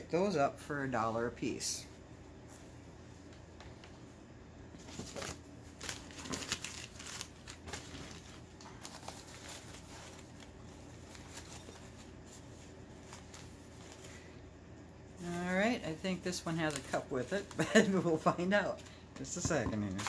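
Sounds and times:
packing material rustling: 4.8s - 14.3s, 15.2s - 18.9s.

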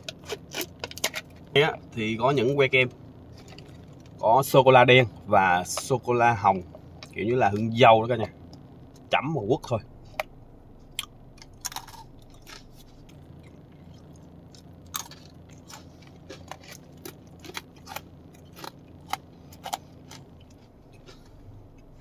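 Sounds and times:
chewing crunchy biscuit: 0.0s - 1.6s, 3.2s - 4.2s, 10.1s - 22.0s
steady low hum: 0.0s - 22.0s.

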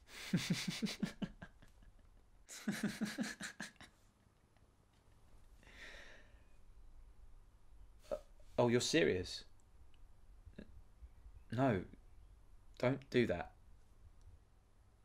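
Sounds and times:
man chuckling: 0.1s - 4.1s
soft breath out: 5.6s - 6.6s.

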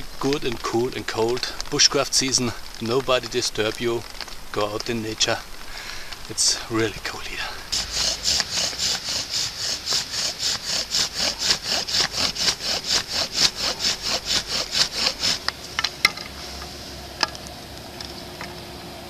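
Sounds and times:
sharp wooden clicks: 0.0s - 16.4s
bow drill spindle rasping: 7.7s - 17.3s.

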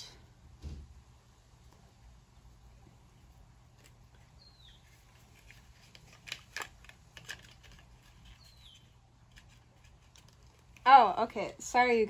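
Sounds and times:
packaging clicks and taps: 5.4s - 8.4s.

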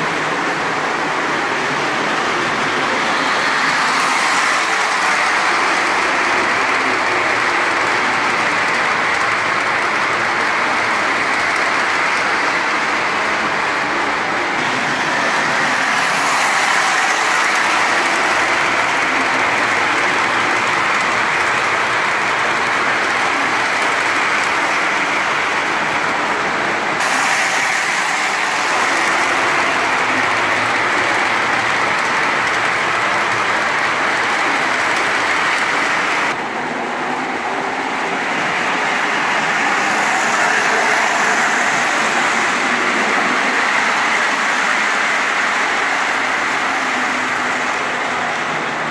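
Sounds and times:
model trains rumbling on track: 0.0s - 48.9s.

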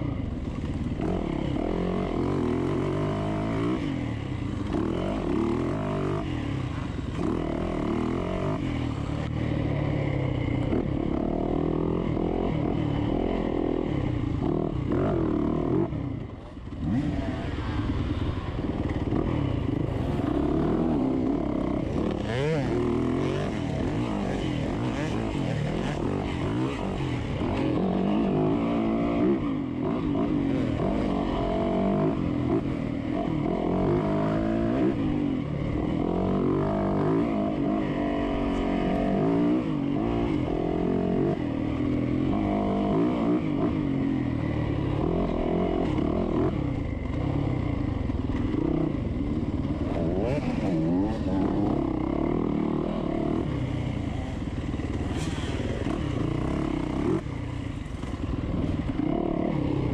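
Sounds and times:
dirt bike engine revving: 16.7s - 59.9s.

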